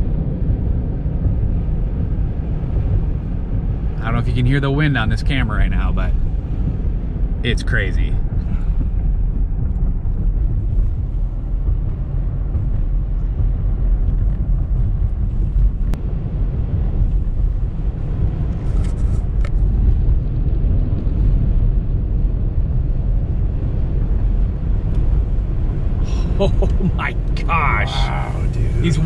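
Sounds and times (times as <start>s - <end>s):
tyre and road noise: 0.0s - 29.0s
wind rumbling against car: 0.0s - 29.0s.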